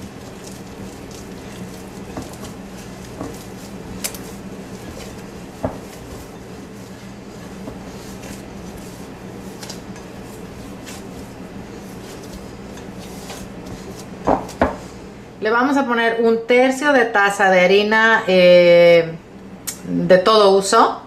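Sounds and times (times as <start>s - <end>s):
hands mixing dough: 0.0s - 15.0s.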